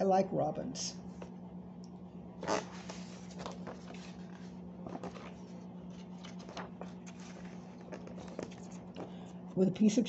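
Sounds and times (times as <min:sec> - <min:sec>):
steady low hum: 0:00.0 - 0:10.0
paper page rustling: 0:02.4 - 0:09.3.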